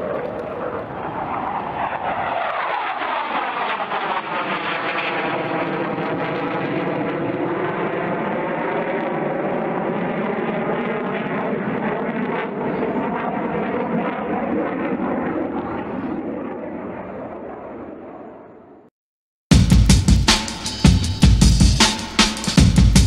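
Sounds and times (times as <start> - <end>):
fighter jet engine roaring: 0.0 - 18.8.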